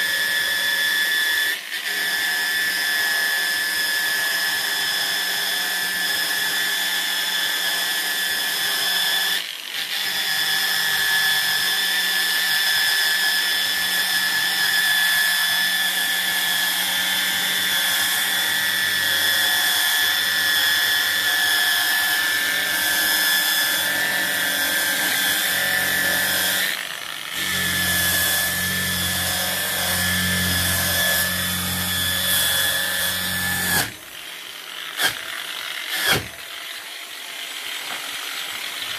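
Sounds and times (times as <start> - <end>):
angle grinder brushing wood: 13.9 - 38.9.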